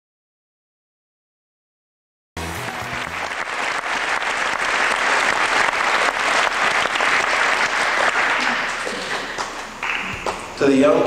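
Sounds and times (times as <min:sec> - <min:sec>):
crowd applauding: 0:02.4 - 0:10.6.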